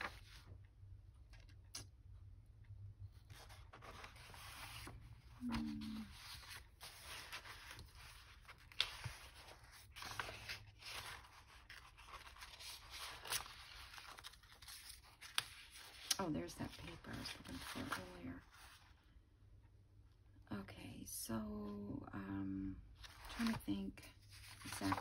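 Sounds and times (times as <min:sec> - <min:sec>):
paper rustling and sliding: 0:00.0 - 0:00.6, 0:03.2 - 0:16.2, 0:23.0 - 0:23.6, 0:24.2 - 0:25.0.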